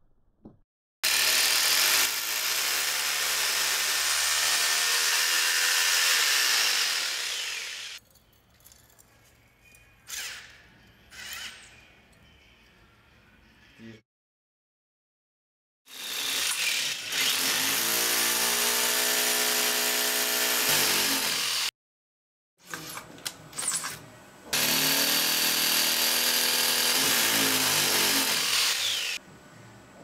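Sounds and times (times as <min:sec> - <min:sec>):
power drill running: 0:01.1 - 0:08.0, 0:15.9 - 0:21.7, 0:24.6 - 0:29.2.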